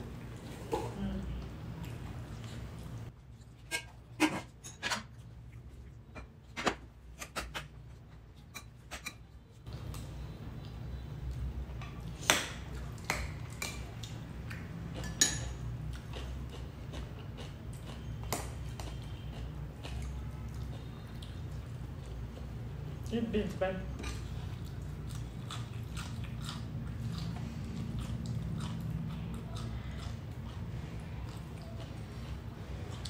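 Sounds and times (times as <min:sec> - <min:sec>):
cutlery clinking on plates: 0:15.0 - 0:15.7.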